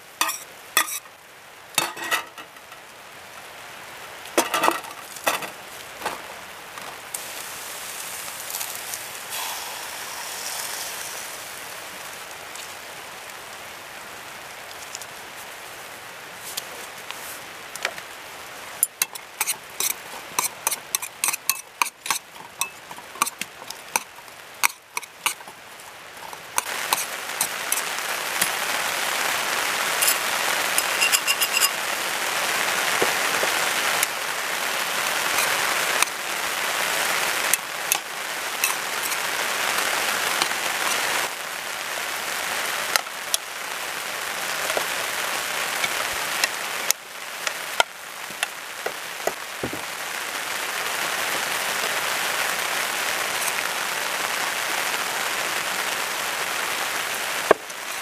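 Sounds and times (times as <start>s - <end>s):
beef and onions sizzling in pan: 0.0s - 16.0s, 17.4s - 58.0s
metal tongs scraping a pan: 0.2s - 1.1s, 1.8s - 2.8s, 4.4s - 5.6s, 18.8s - 25.6s, 26.2s - 28.6s, 30.0s - 30.2s, 30.8s - 31.8s, 35.3s - 36.1s, 37.5s - 39.3s.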